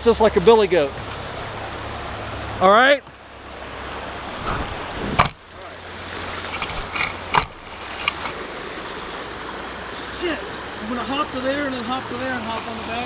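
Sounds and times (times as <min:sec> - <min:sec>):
creek rushing over stones: 0:00.2 - 0:13.0
sharp knocks: 0:04.4 - 0:05.5.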